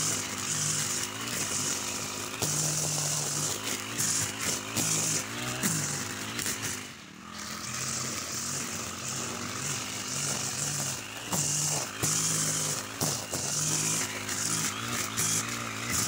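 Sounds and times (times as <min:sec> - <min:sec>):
brush cutter engine: 0:00.0 - 0:16.0
trimmer line whipping through grass: 0:00.0 - 0:16.0.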